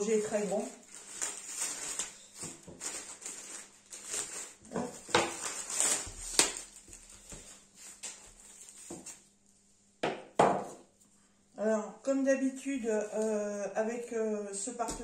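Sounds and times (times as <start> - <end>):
plastic wrap crackling: 0.0 - 9.3, 12.6 - 13.7.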